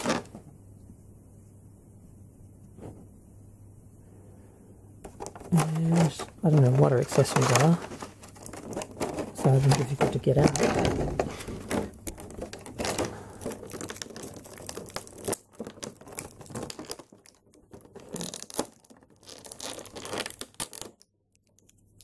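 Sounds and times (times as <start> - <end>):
plastic packaging crinkling: 0.0 - 0.5, 5.0 - 22.0.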